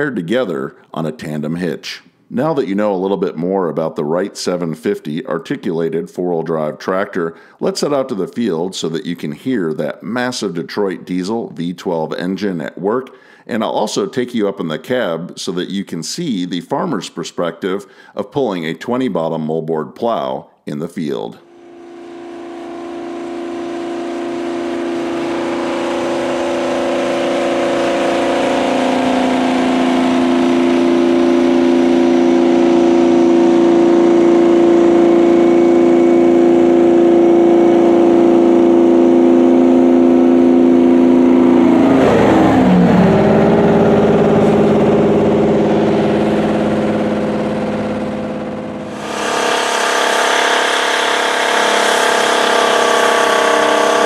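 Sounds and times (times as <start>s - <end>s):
tractor diesel engine: 21.4s - 54.0s
tractor engine working hard: 21.4s - 54.0s.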